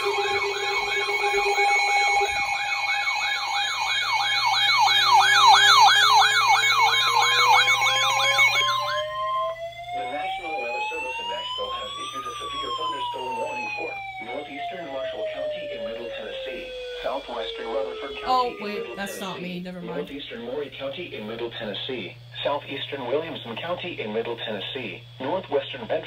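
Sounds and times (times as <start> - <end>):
rising wail: 0.0 - 19.4
electronic alarm warble: 0.0 - 23.8
steady warning tone and beeps: 0.0 - 26.0
broadcast voice: 10.0 - 26.0.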